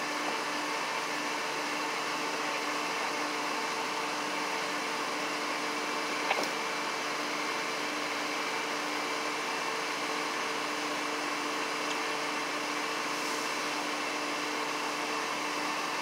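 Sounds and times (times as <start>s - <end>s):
motor hum with hiss: 9.8s - 16.0s.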